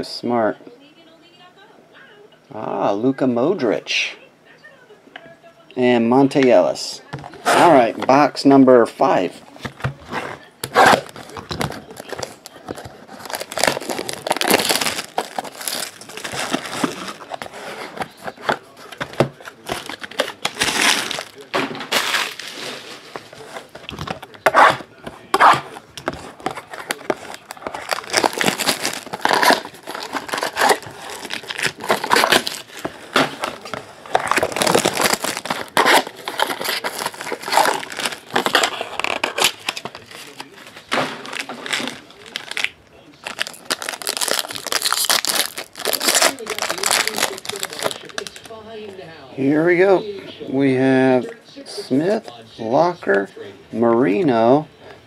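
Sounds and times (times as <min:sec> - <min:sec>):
plastic wrapping crinkling and tearing: 0:07.2 - 0:08.4, 0:09.2 - 0:48.9.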